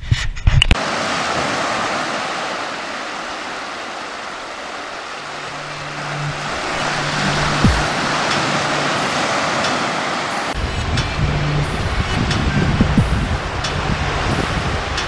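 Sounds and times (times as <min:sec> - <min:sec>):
sea water washing over sand: 0:00.8 - 0:15.0
sharp knocks: 0:07.4 - 0:08.6.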